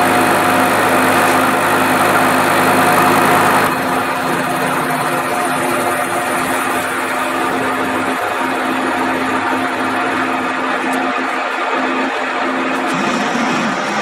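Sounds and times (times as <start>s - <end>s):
milling machine drone: 0.0s - 14.0s
hissing cutting noise: 12.6s - 14.0s.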